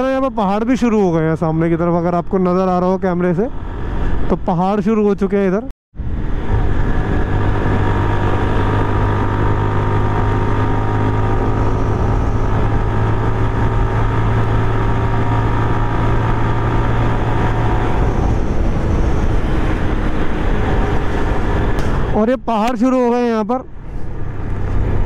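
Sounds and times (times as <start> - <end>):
wind noise: 6.0 - 22.2.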